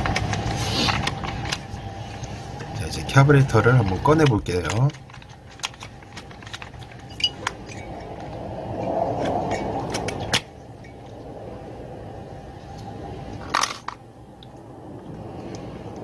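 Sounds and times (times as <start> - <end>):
low background rumble: 0.0 - 16.0
clinks of plastic and metal parts: 3.6 - 8.3, 13.4 - 14.0.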